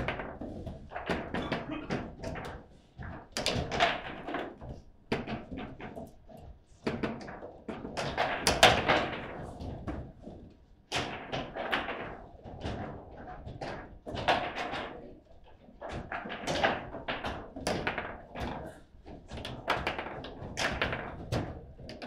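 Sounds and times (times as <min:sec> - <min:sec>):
table football plastic knocks: 0:00.0 - 0:06.1, 0:06.8 - 0:10.1, 0:15.8 - 0:22.0.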